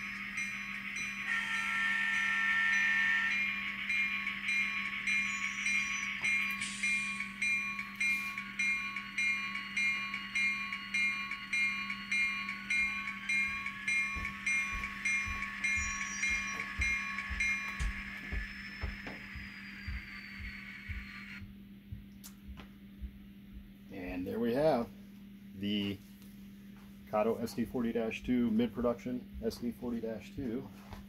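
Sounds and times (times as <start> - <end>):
locomotive bell dinging: 0.0 - 21.4
locomotive engine hum: 0.0 - 21.4
turbo whine rising: 0.0 - 21.6
model locomotive horn blast: 1.2 - 3.4.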